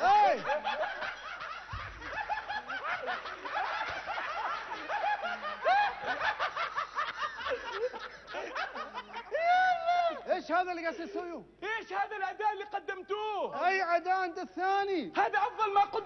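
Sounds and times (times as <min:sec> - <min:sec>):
audience laughing: 0:00.0 - 0:10.2.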